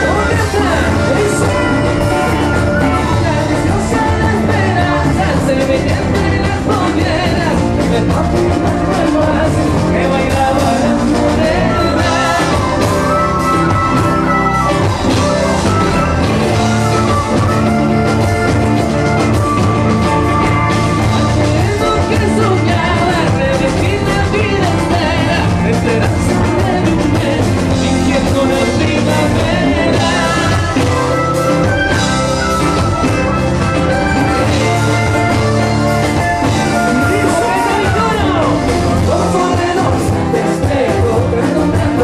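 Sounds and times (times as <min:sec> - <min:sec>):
man singing into microphone: 0:00.0 - 0:14.0, 0:21.0 - 0:32.1, 0:36.4 - 0:42.0
live band music: 0:00.0 - 0:42.0.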